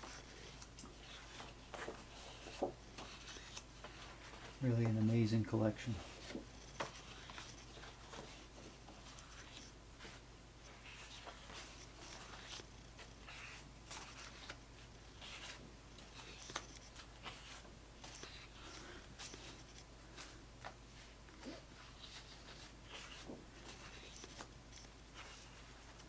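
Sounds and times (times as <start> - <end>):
low steady hum: 0.0 - 26.0
paper scraping and rustling: 0.0 - 26.0.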